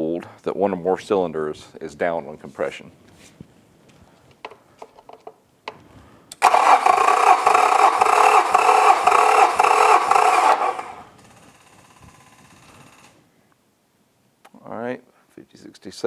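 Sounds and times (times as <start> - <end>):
starter motor cranking engine: 6.4 - 13.2.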